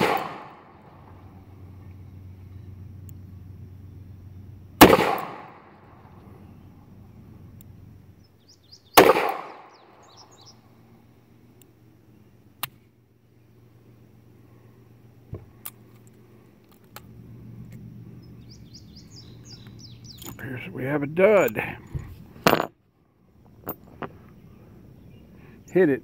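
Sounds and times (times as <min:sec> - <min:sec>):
revolver gunshot: 0:00.0 - 0:00.8, 0:04.8 - 0:05.7, 0:09.0 - 0:10.0.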